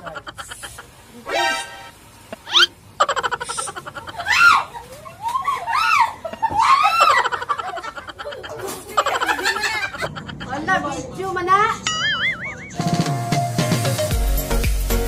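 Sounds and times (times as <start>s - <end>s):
women laughing: 0.0s - 1.0s, 3.0s - 11.0s, 12.0s - 12.8s
women shrieking: 3.6s - 7.9s.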